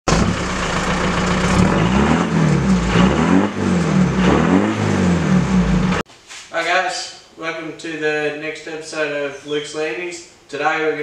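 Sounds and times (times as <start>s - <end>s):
vehicle engine revving: 0.1s - 6.0s.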